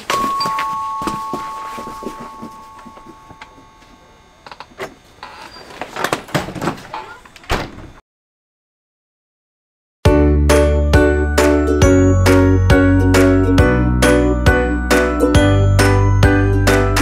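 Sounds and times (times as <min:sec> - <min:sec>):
two-note doorbell chime: 0:00.0 - 0:04.4, 0:10.5 - 0:17.0.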